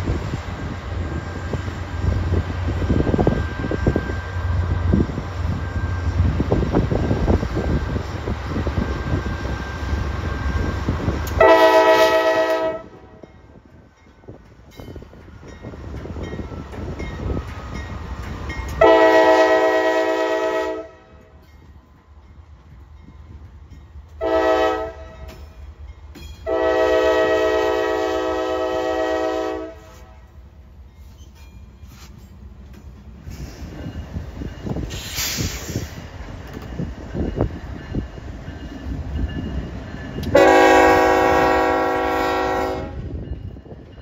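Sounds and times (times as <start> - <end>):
locomotive engines rumbling: 0.0 - 44.0
diesel locomotive air horn: 11.2 - 13.2, 18.7 - 21.4, 24.2 - 25.4, 26.4 - 30.4, 40.2 - 43.2.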